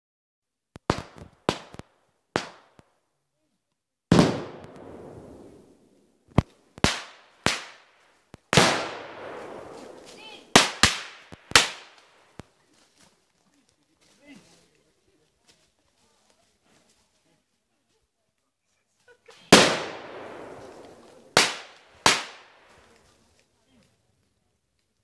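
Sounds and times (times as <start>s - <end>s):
sharp gunfire bangs: 4.1s - 5.5s, 8.5s - 12.0s, 19.5s - 22.6s
loud blasts with echo: 4.1s - 5.8s, 8.5s - 12.3s, 19.5s - 22.7s.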